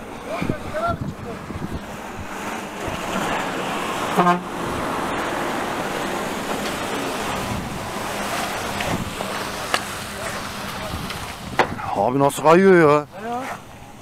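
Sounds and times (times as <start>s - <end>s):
vehicles passing on wet road: 0.0s - 14.0s
vehicle horn toot: 4.1s - 4.5s.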